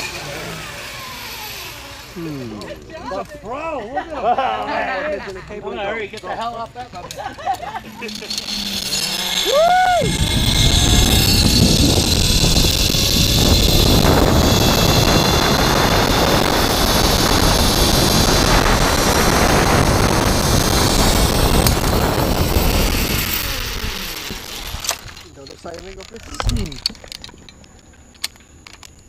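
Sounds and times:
zip-line trolley on steel cable: 0.0 - 3.4, 5.9 - 29.0
wind rushing on microphone: 9.4 - 25.2.

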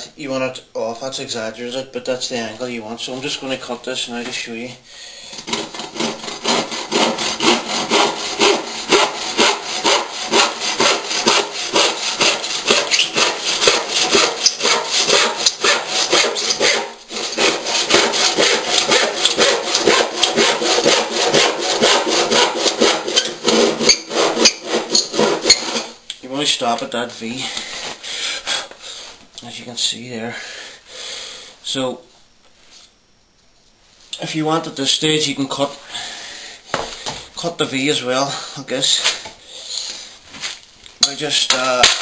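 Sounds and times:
handsaw cutting wood: 5.3 - 26.0.

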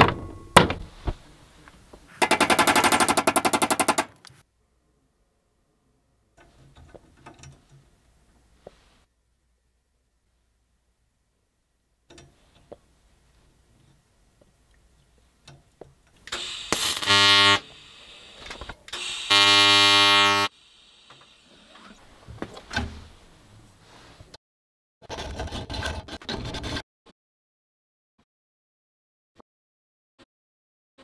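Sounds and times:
welding arc buzzing: 16.3 - 21.6.

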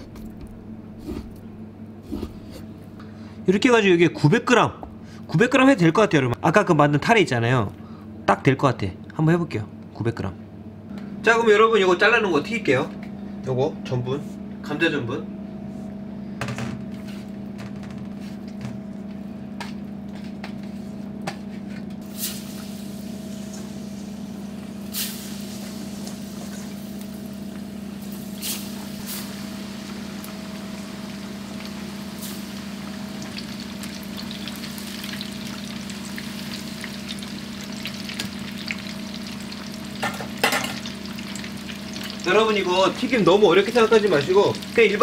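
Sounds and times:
steady low hum: 0.0 - 45.0
fish deep-frying in oil: 22.1 - 45.0.

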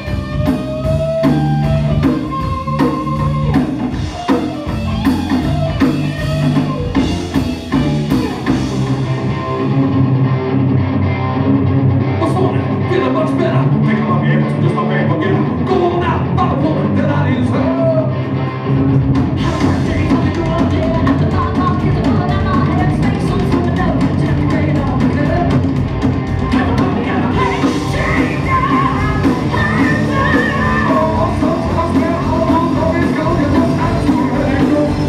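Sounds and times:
drum kit: 0.0 - 10.0, 18.7 - 35.0
bass guitar: 0.0 - 35.0
electric guitar: 0.0 - 35.0
person singing: 19.4 - 25.6, 26.4 - 35.0.

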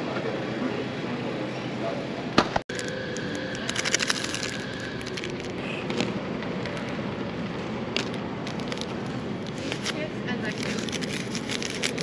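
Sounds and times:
packet wrapper crackling: 2.7 - 5.6, 7.9 - 12.0
background hum: 2.7 - 12.0.

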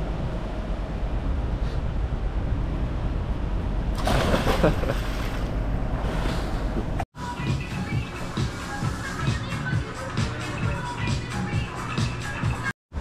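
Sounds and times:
water churning: 3.9 - 6.8
person splashing into pool: 4.0 - 6.5.

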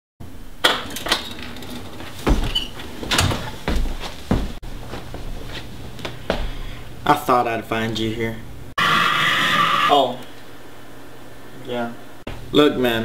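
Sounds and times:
irregular knocks and thumps: 1.9 - 4.6.

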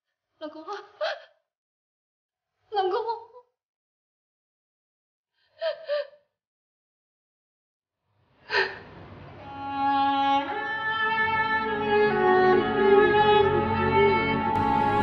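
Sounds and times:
violin and strings music: 9.4 - 15.0.

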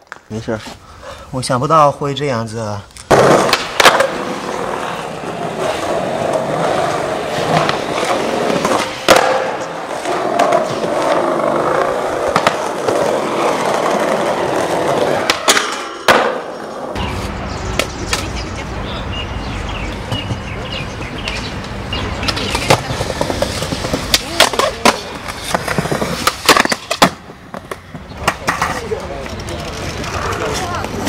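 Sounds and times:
skateboard wooden clacks: 3.1 - 4.8, 7.4 - 14.1, 14.9 - 16.7, 22.2 - 31.0
skateboard wheels rolling: 3.1 - 18.5, 19.7 - 31.0.

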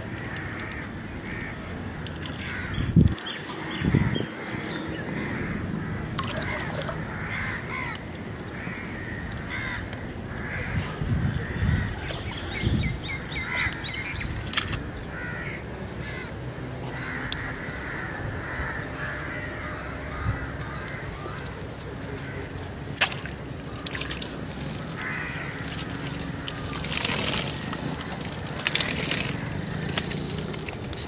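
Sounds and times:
crows cawing: 0.2 - 1.6, 2.4 - 2.9, 3.8 - 12.0, 15.1 - 22.5, 23.7 - 30.3.

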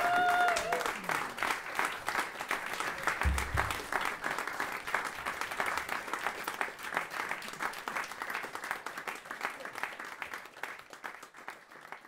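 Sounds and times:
audience applauding: 0.0 - 12.0
brief low thump: 3.2 - 3.8.

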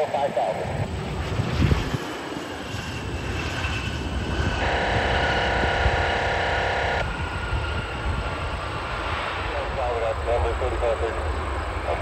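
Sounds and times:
jet engines rumbling: 0.0 - 12.0
cluster of steady tones: 4.6 - 7.0.

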